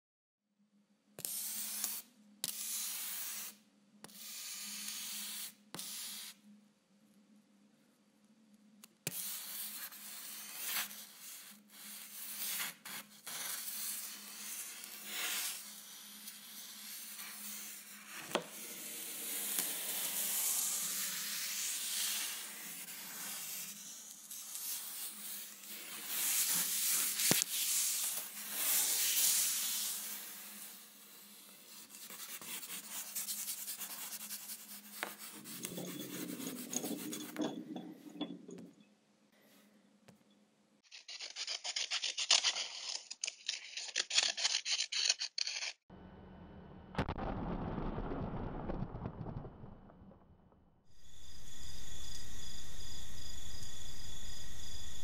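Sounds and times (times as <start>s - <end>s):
charcoal scratching on canvas: 9.1s - 37.9s, 40.9s - 45.7s.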